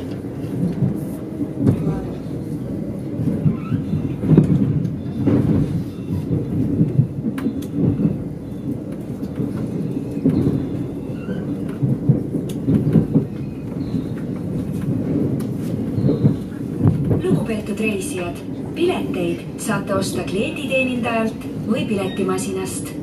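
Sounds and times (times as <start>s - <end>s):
train rumble from inside: 0.0s - 23.0s
wheels clicking over rails: 1.6s - 18.8s.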